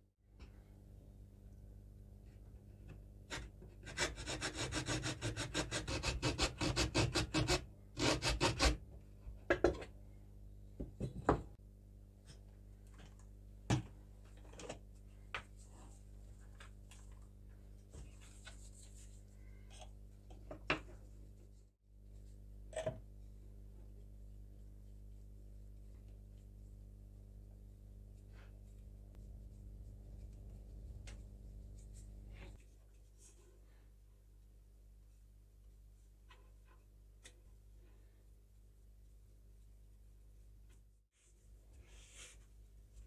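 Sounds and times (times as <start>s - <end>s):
hacksaw cutting wood: 3.8s - 8.8s.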